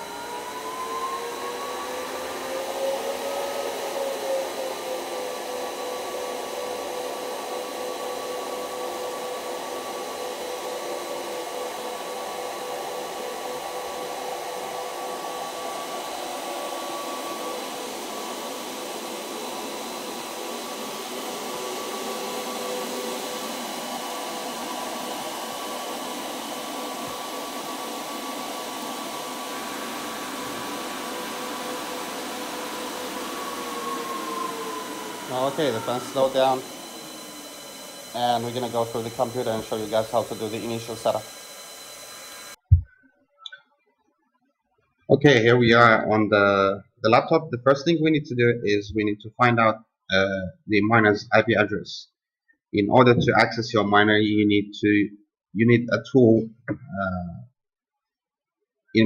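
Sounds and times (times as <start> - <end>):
cooling fans whining: 0.0 - 42.8.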